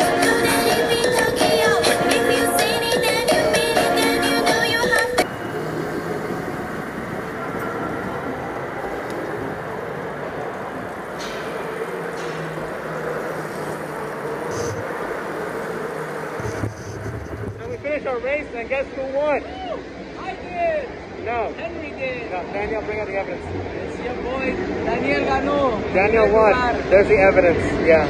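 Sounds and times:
go-kart engine running: 0.0s - 17.8s.

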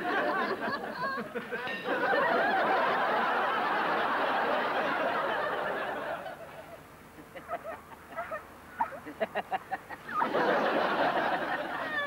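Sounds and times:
studio audience laughing: 0.0s - 6.6s, 9.1s - 12.0s.

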